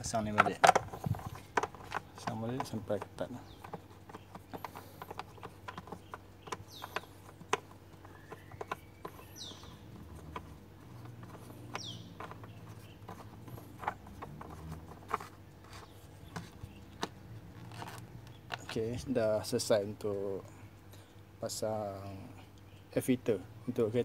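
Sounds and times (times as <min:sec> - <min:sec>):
plastic wing nut clicking: 0:00.3 - 0:17.1.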